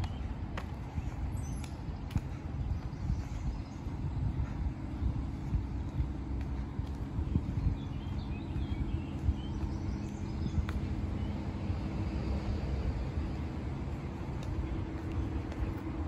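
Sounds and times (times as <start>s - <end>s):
steady low hum: 0.0s - 16.0s
wind on microphone: 0.0s - 16.0s
bird chirps: 7.4s - 11.4s.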